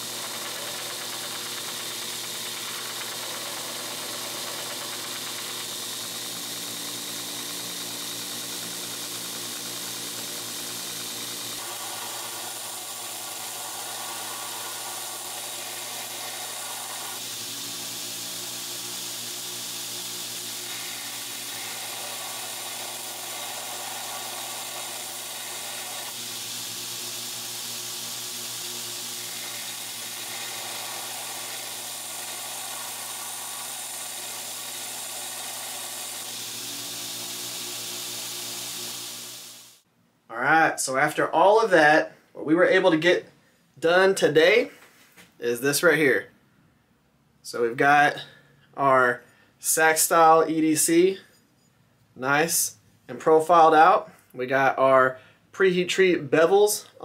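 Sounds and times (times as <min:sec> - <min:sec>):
blade grinding on belt: 0:00.0 - 0:39.8
grinder motor hum: 0:00.0 - 0:39.8.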